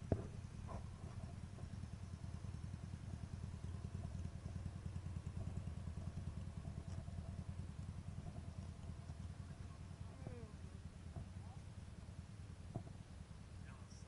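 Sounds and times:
motorcycle engine idling: 0.0s - 14.0s.

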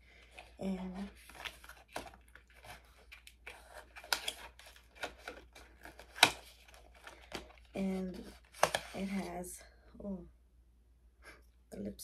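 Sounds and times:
packaging rustling and crinkling: 0.1s - 9.3s.

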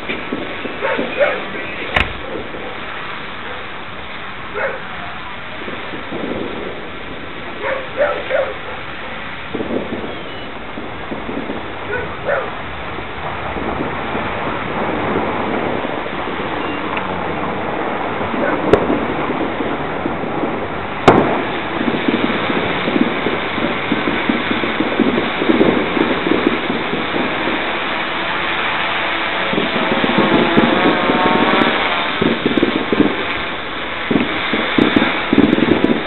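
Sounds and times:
firecrackers popping: 0.0s - 3.1s, 20.9s - 36.0s
steady noisy hiss: 0.0s - 36.0s.

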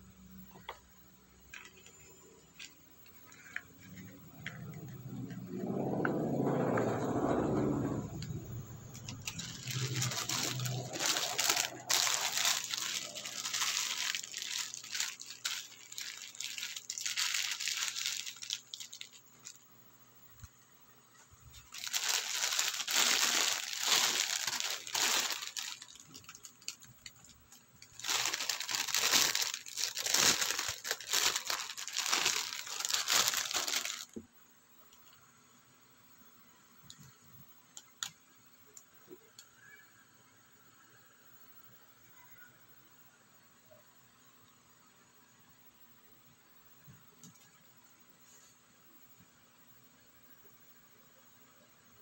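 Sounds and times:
plastic packaging crinkling: 1.5s - 19.6s, 21.4s - 34.2s.

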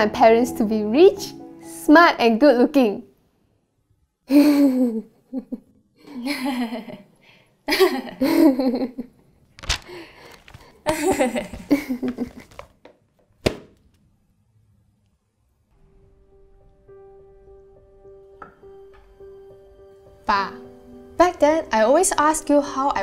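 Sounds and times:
young women laughing: 7.7s - 9.1s, 10.8s - 12.6s.

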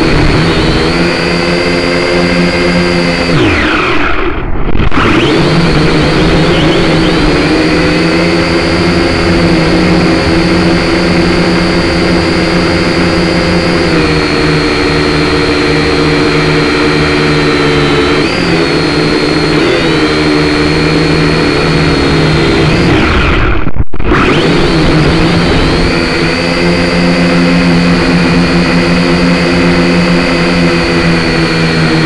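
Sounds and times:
drone motors whining: 0.0s - 32.0s.

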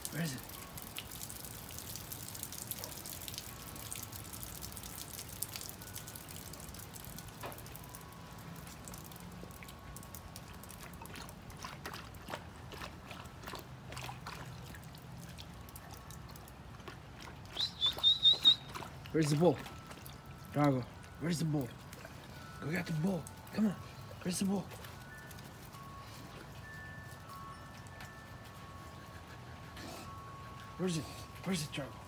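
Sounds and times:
light rain hiss: 0.0s - 11.0s, 19.8s - 32.0s
raindrop ticks and drips: 0.0s - 29.0s.

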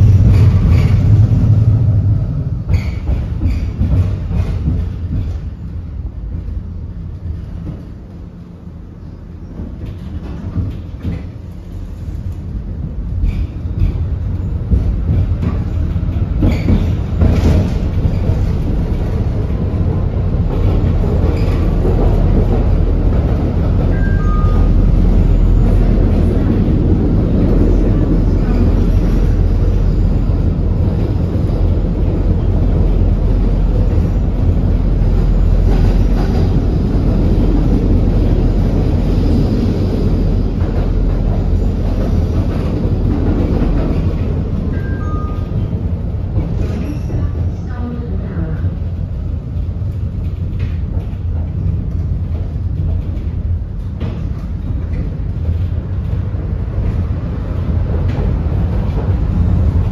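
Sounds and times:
tram wheels rumbling on rails: 0.0s - 59.9s.

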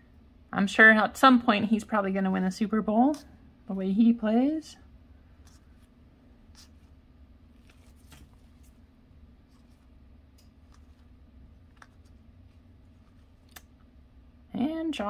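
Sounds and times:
low steady hum: 0.0s - 15.0s
trading cards flipping: 7.6s - 8.8s, 9.5s - 13.8s.

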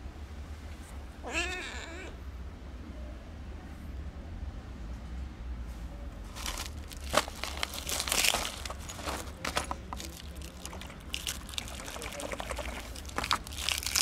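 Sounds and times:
hands rummaging in fabric bag: 6.3s - 14.0s
sharp crackles: 10.0s - 14.0s.

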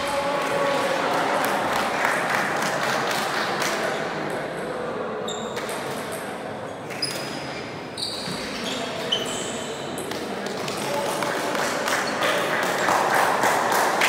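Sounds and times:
short high squeaks: 7.0s - 10.0s.

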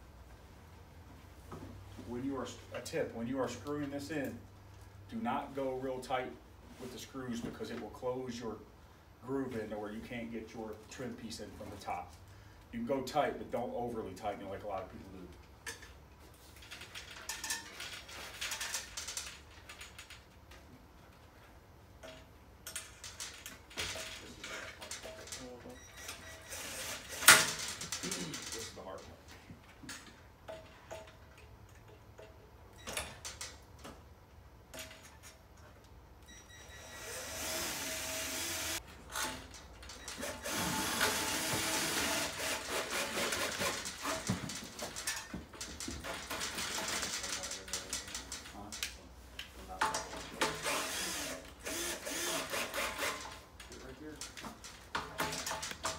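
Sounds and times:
metal hardware clinking: 22.0s - 29.1s, 29.8s - 33.9s
drill driving screw into metal: 26.1s - 27.8s, 36.8s - 39.4s, 40.1s - 44.4s, 50.4s - 53.4s
knocks and handling noise: 42.9s - 50.6s, 52.8s - 55.9s.

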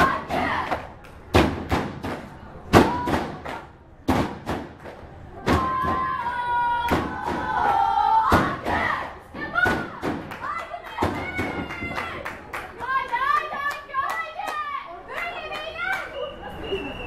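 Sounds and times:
spectators chanting: 0.0s - 0.8s
loud thuds: 1.3s - 6.2s.

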